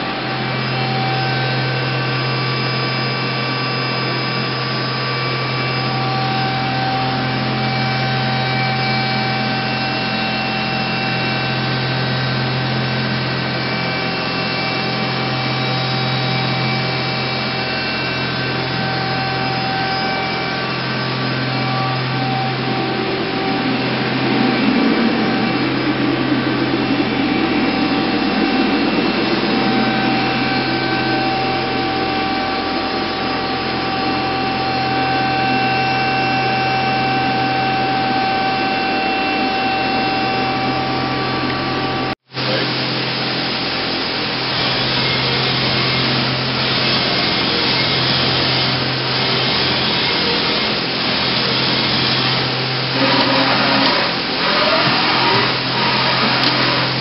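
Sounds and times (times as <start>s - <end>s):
machinery hum and whine: 0.0s - 57.0s
rushing noise: 16.9s - 34.9s, 52.5s - 57.0s.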